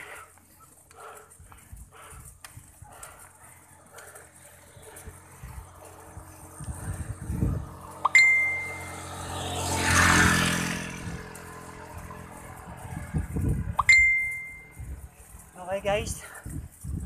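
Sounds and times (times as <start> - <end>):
small motorcycle passing: 0.0 - 17.0
sharp metallic dings: 8.0 - 9.1, 13.8 - 14.8.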